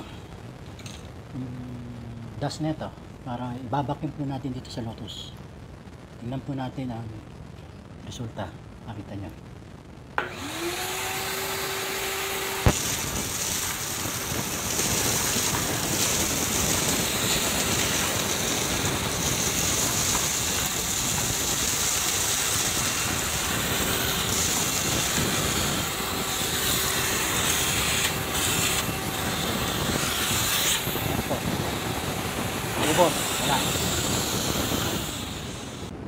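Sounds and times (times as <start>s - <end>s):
shop vacuum running: 10.2s - 35.9s
vacuum hose sucking up dirt: 12.5s - 35.9s.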